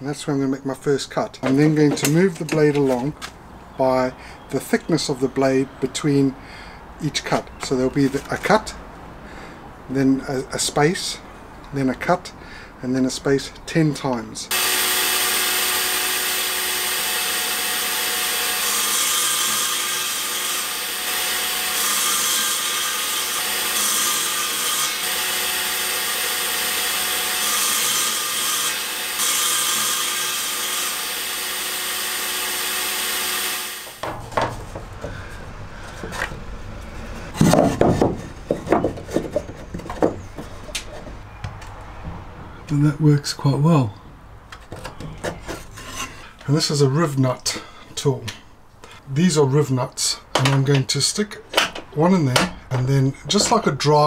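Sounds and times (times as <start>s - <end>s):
table saw cutting wood: 14.5s - 34.2s
wood knocking against metal: 34.0s - 36.4s, 37.3s - 41.7s.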